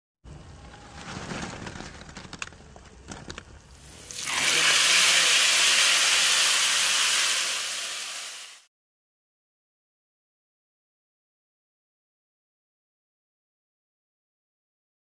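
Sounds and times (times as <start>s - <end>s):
hot oil sizzling: 3.7s - 8.7s.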